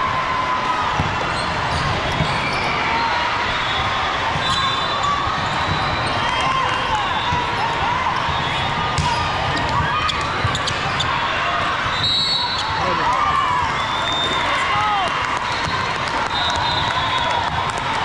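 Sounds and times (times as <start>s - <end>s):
sneakers squeaking on gym floor: 1.3s - 3.0s, 8.2s - 11.3s, 11.9s - 12.9s.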